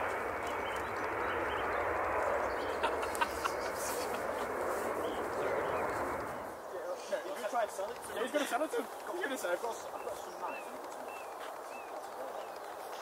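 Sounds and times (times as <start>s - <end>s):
jet engines roaring: 0.0s - 6.8s.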